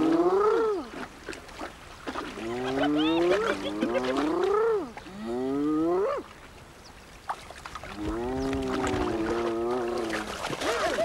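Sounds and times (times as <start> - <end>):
hyenas calling: 2.4 - 4.9.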